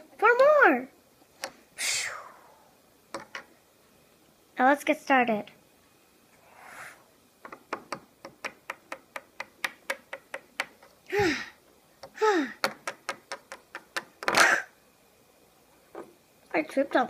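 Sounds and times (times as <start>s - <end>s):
plastic bricks tapping on wooden table: 7.4s - 11.0s, 12.0s - 14.3s.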